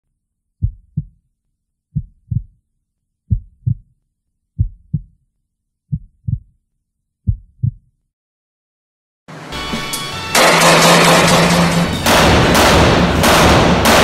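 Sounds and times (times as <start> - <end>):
heartbeat thumps: 0.6 - 1.2, 1.9 - 2.6, 3.3 - 3.9, 4.6 - 5.2, 5.9 - 6.6, 7.2 - 7.9.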